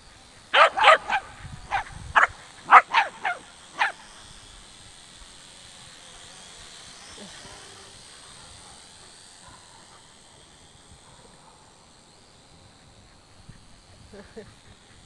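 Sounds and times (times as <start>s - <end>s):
dog barking: 0.6s - 4.0s, 9.4s - 10.0s.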